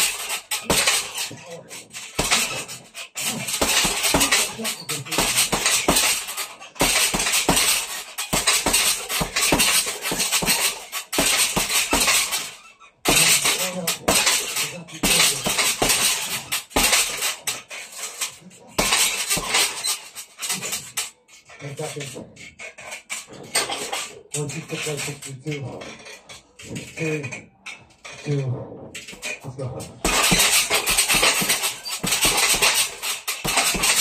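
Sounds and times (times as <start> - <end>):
punches on heavy bag: 0.0 - 1.3, 2.1 - 17.3, 18.8 - 19.9, 30.0 - 34.0
chain and stand rattling: 0.0 - 34.0.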